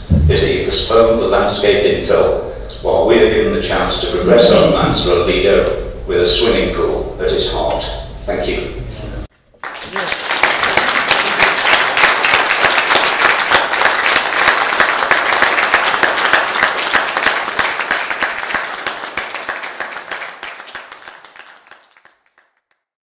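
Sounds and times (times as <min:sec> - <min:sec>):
audience applauding: 0:09.6 - 0:22.6.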